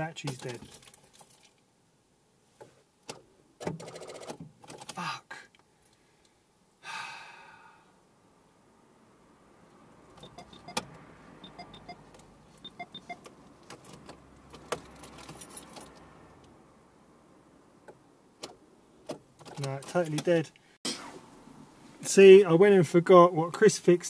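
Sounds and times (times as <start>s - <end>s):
car keys jangling: 0.2s - 1.6s, 12.6s - 16.1s, 19.4s - 20.4s.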